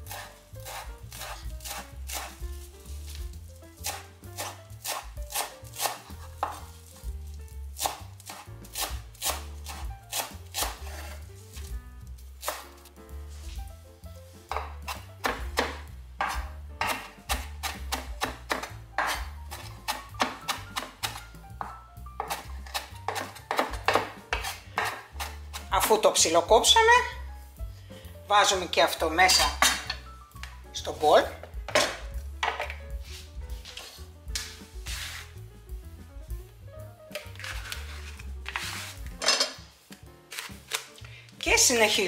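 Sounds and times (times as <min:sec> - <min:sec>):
knife chopping on wooden board: 0:00.0 - 0:03.2, 0:03.8 - 0:06.7, 0:07.8 - 0:11.2, 0:12.4 - 0:12.7, 0:14.5 - 0:25.9, 0:31.4 - 0:35.2.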